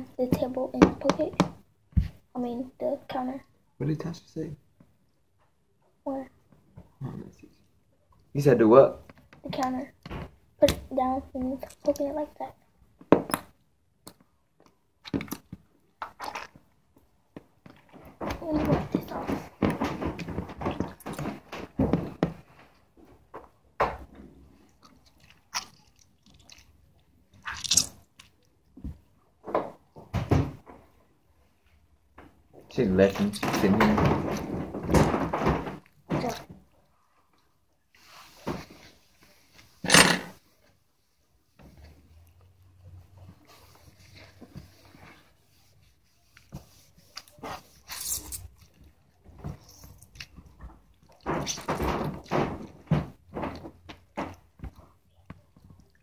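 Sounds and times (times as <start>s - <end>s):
slime squelching: 13.2s - 21.7s, 24.4s - 29.2s.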